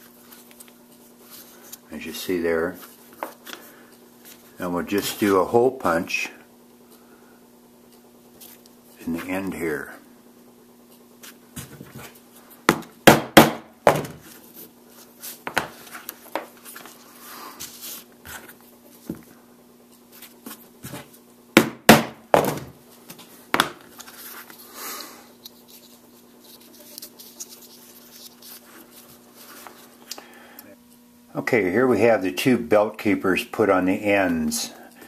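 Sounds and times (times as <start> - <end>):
punch struck through leather: 21.6 - 22.5.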